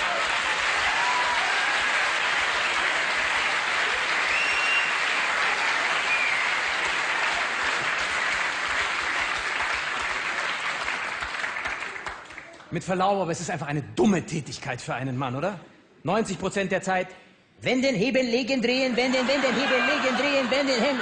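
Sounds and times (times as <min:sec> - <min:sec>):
audience applauding: 0:00.0 - 0:12.7, 0:19.0 - 0:21.0.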